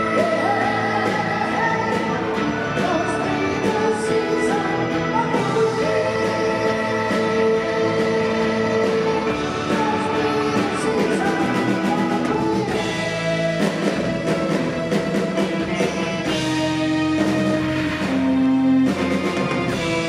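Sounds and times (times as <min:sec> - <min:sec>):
drums: 0:00.0 - 0:20.0
electric bass: 0:00.0 - 0:20.0
person singing: 0:00.0 - 0:20.0
rock band playing live: 0:00.0 - 0:20.0.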